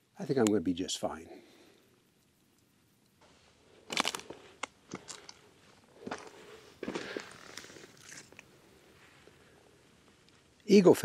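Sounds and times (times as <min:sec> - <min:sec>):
twigs cracking underfoot: 0:03.8 - 0:08.5.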